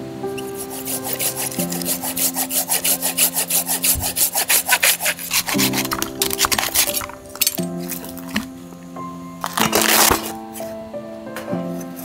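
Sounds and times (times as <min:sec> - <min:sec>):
hand saw cutting wood: 0:00.4 - 0:08.4, 0:09.5 - 0:10.3.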